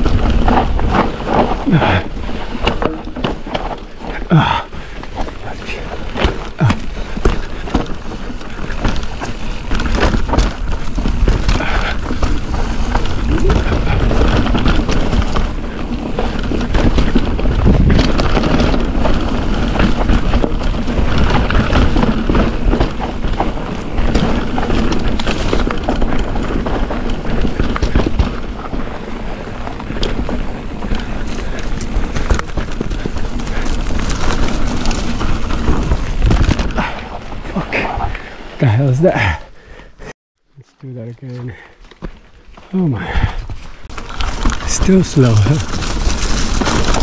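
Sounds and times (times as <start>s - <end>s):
bike clattering and knocking: 0.0s - 37.6s
low wind rumble on microphone: 0.0s - 38.7s
bike tyres rolling on dirt: 0.0s - 47.0s.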